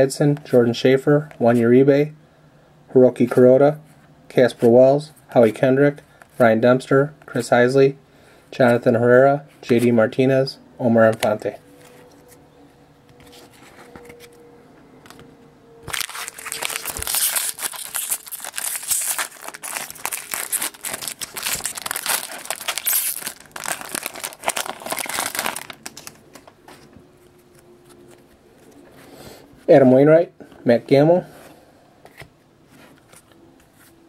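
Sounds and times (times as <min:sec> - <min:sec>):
foil wrapper tearing and crinkling: 0:15.8 - 0:26.4.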